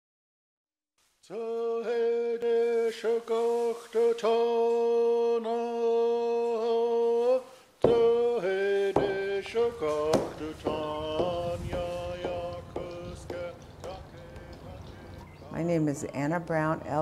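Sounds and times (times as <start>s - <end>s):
person singing a chant: 1.3s - 15.2s
struck beat: 7.8s - 8.4s, 9.0s - 14.8s.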